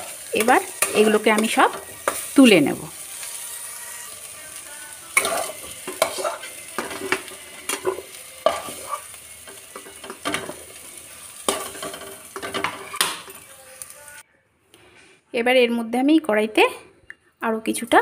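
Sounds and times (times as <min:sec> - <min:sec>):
spatula scraping pan: 0:00.0 - 0:02.6, 0:05.2 - 0:10.7
oil sizzling: 0:00.0 - 0:14.2.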